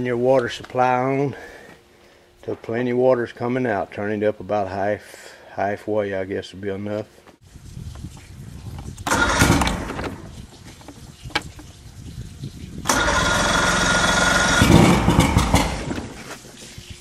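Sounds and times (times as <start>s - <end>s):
outboard motor electric starter cranking: 8.9s - 11.8s, 12.8s - 16.2s
engine firing briefly: 12.9s - 16.0s.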